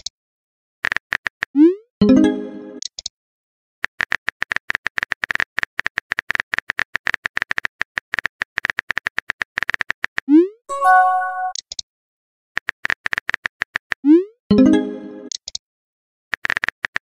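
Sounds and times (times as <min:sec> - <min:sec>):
message chime: 0:10.7 - 0:11.6, 0:14.5 - 0:15.3.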